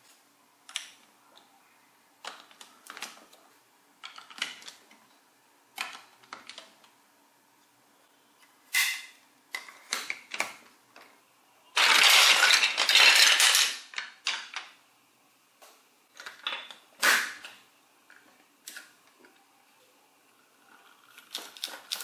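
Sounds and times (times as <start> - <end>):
plastic toy blocks clicking: 2.2 - 3.4, 4.0 - 4.8, 11.8 - 14.8, 16.1 - 16.8
loose blocks rattling: 11.8 - 14.8.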